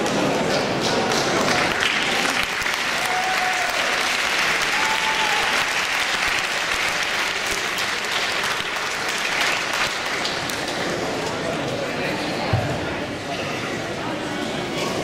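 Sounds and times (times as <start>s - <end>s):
spectators clapping: 0.0s - 11.5s.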